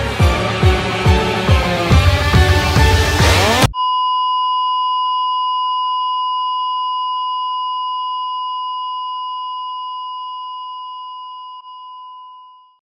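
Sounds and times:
long electronic beep: 0:03.6 - 0:12.8.

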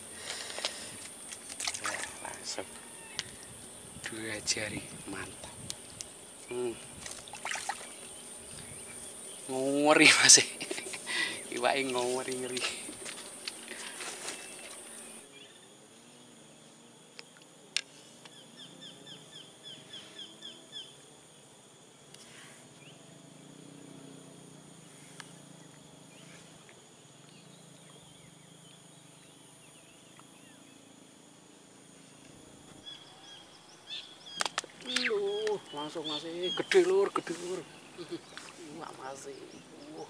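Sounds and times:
bird chirping: 0:32.8 - 0:40.0
sharp click: 0:34.4 - 0:35.1.

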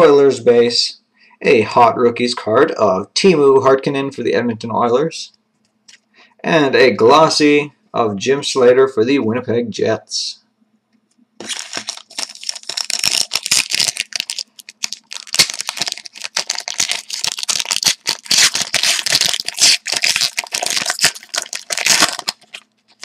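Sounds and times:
wrapper tearing and crinkling: 0:11.4 - 0:23.0.

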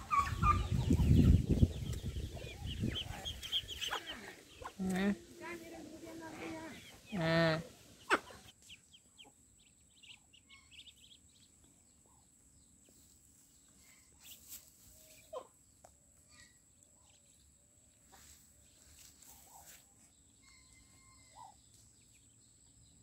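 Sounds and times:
ducklings peeping: 0:00.0 - 0:12.9.

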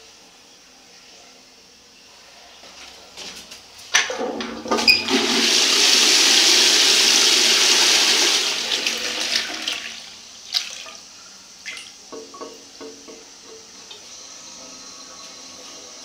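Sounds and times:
toilet flushing: 0:04.1 - 0:16.0.

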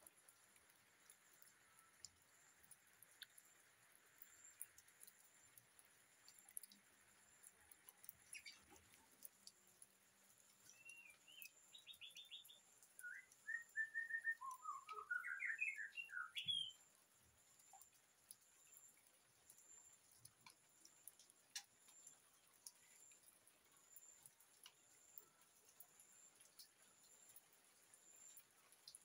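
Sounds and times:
faint ticks: 0:00.0 - 0:29.0
bird singing chirps and whistles: 0:10.7 - 0:16.8.

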